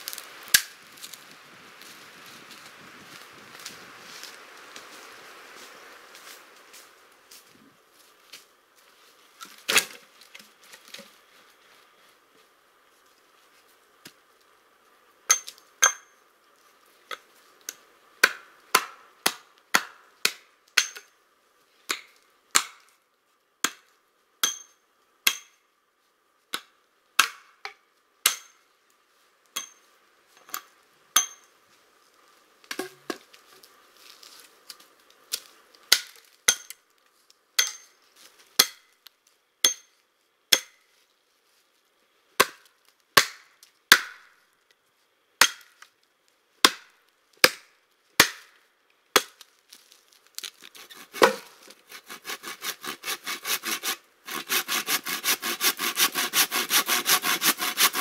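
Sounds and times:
logs dropped on ground: 9.4 - 11.2
hatchet chopping wood: 18.2 - 21.1, 21.9 - 22.8, 23.6 - 25.6, 26.5 - 27.5, 28.2 - 28.6, 35.9 - 36.8, 38.6 - 38.8, 43.2 - 44.3, 45.4 - 45.7, 46.6 - 48.5, 49.1 - 49.4, 50.8 - 58.0.

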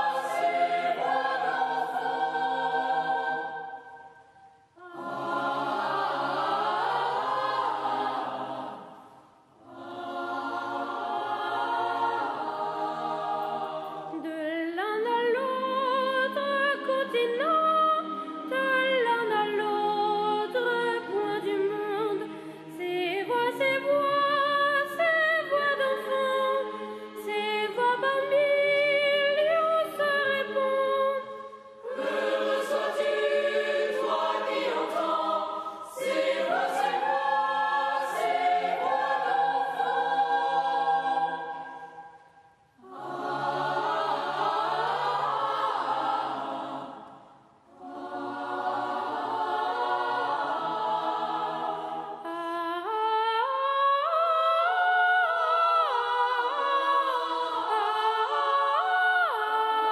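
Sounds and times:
boys' choir singing: 0.0 - 4.2, 4.8 - 14.3, 31.8 - 52.3, 55.2 - 59.5
singers breathing: 22.3 - 22.7, 35.5 - 35.9.

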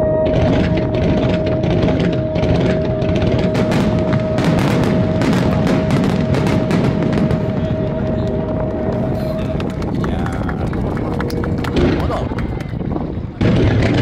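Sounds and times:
steady high tone: 0.0 - 10.4
fireworks bangs and cracks: 0.2 - 14.0.

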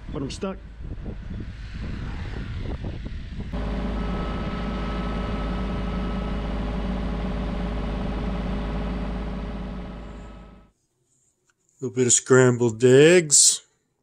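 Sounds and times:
tractor diesel engine running: 3.6 - 10.7.

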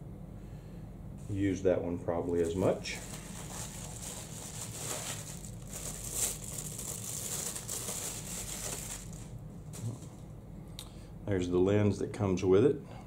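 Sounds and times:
packaging crinkling: 2.4 - 10.2.

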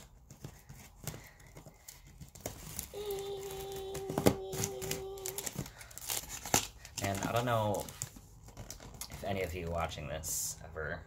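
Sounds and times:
scissors slitting packing tape: 0.0 - 9.2
tape crinkling and ripping: 0.0 - 9.8.

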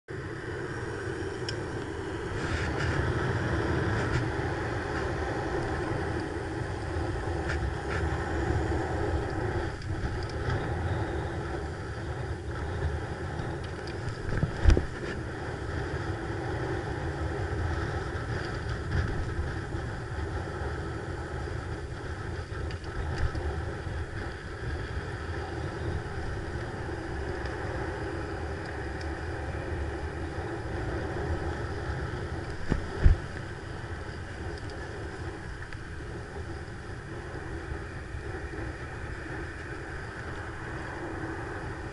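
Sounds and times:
road rumble: 0.0 - 41.9
wind on microphone: 0.1 - 41.9.

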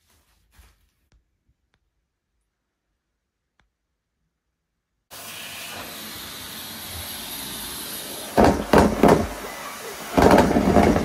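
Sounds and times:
vacuum cleaner motor running: 5.1 - 11.0.

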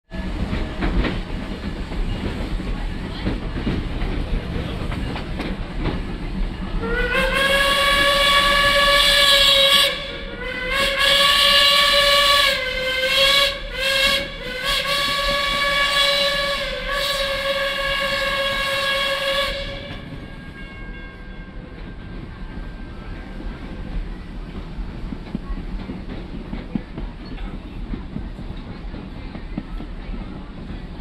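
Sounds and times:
train rumbling on rails: 0.0 - 31.0
steam locomotive whistle blasts: 6.8 - 20.7.

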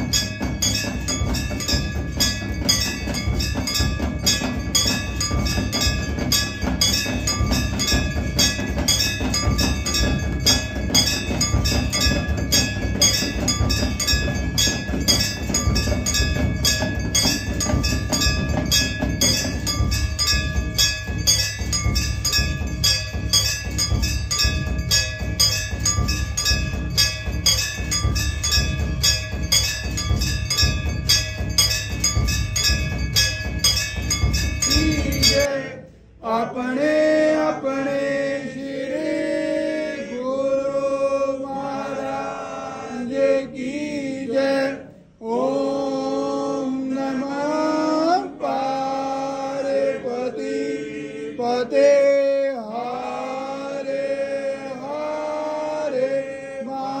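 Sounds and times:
bells ringing: 0.0 - 35.7
percussion fast rhythm: 0.0 - 37.9
man chanting a hymn: 34.7 - 39.0, 43.0 - 57.0.

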